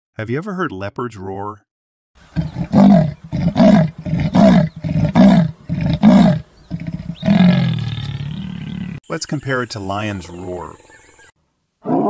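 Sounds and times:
leopard sawing roar: 0:02.3 - 0:09.0.

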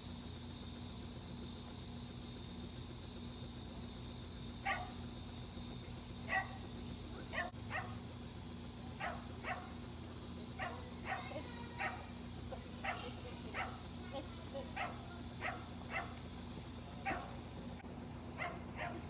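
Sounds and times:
steady background hiss: 0:00.0 - 0:19.0
dog barking: 0:04.6 - 0:05.0, 0:06.3 - 0:06.6, 0:07.3 - 0:08.0, 0:09.0 - 0:09.8, 0:10.6 - 0:12.1, 0:12.8 - 0:13.9, 0:14.7 - 0:16.2, 0:17.0 - 0:17.4, 0:18.4 - 0:19.0.

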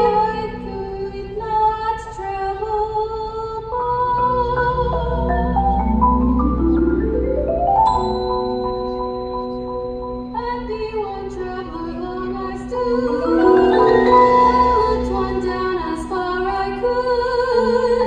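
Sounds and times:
marimbas and vibraphones playing: 0:04.5 - 0:10.8, 0:12.6 - 0:16.2.

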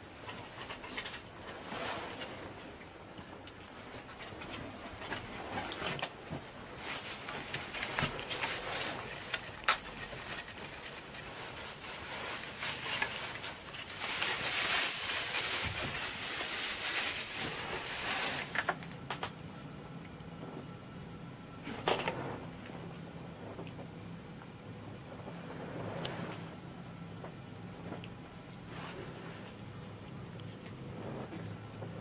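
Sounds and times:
foil and plastic rustling: 0:03.7 - 0:19.3.

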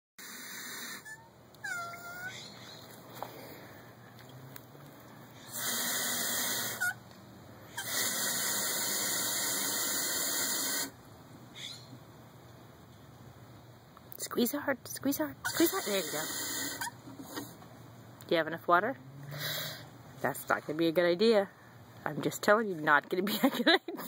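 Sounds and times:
hose water spraying into watering can: 0:05.5 - 0:06.8, 0:15.5 - 0:16.8.

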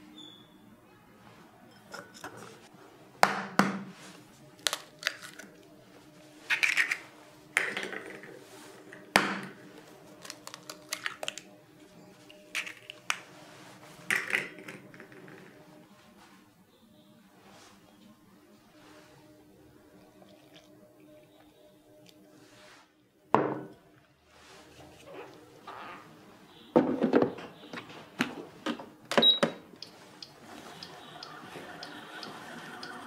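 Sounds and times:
eggs cracking on a bowl rim: 0:04.6 - 0:05.6, 0:10.2 - 0:11.5.

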